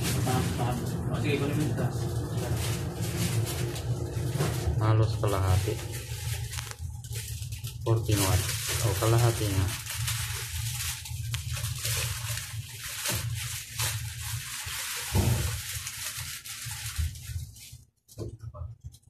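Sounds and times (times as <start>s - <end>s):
steady low hum: 0.0s - 9.9s.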